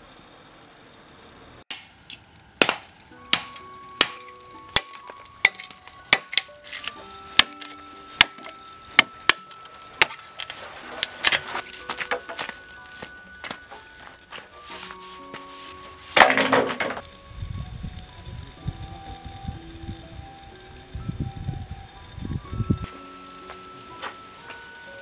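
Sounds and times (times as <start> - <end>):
machete chopping bamboo: 1.7 - 12.6, 16.1 - 17.0
soft background music: 2.4 - 25.0.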